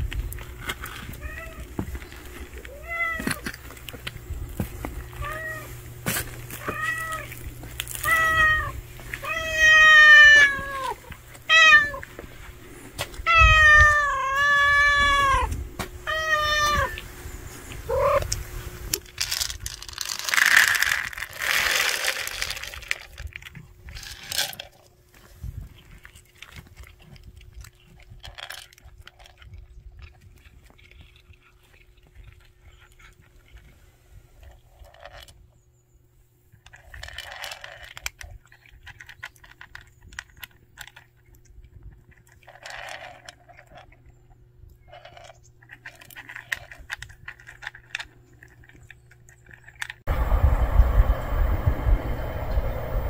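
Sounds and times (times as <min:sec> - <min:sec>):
cat meowing: 0:06.6 - 0:07.3, 0:08.0 - 0:12.0, 0:13.2 - 0:17.0
cat chewing: 0:25.6 - 0:33.8, 0:44.7 - 0:50.1.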